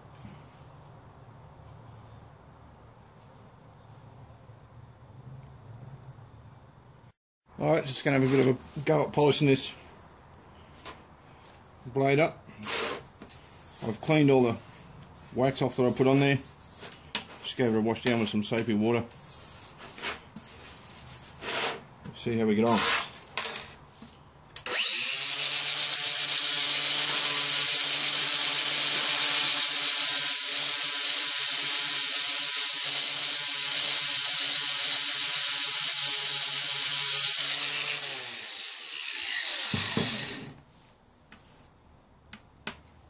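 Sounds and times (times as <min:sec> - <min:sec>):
angle grinder grinding steel: 0:24.6 - 0:40.6.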